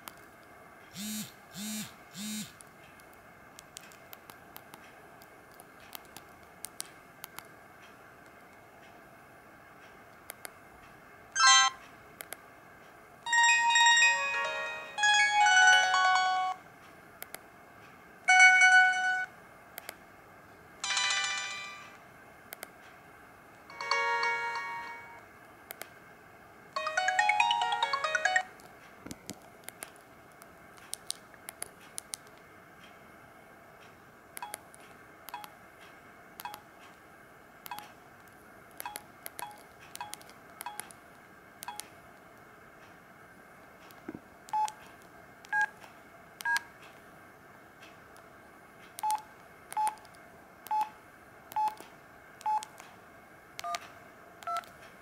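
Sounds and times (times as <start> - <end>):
phone message alert jingles: 11.4 - 11.8, 20.8 - 22.0, 26.8 - 28.5
phone key clicks and beeps: 34.4 - 34.7, 35.3 - 35.6, 36.4 - 36.6, 37.7 - 37.9, 38.8 - 41.0, 41.6 - 41.9, 44.5 - 44.8, 46.4 - 46.7, 49.0 - 50.1, 51.5 - 51.8, 52.4 - 52.8, 53.6 - 54.7.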